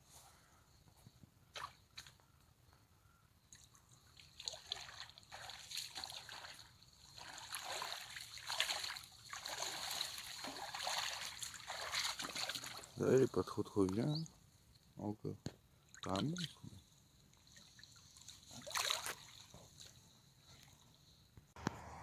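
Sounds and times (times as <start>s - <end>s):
shallow water splashing: 3.5s - 14.3s, 15.8s - 20.8s.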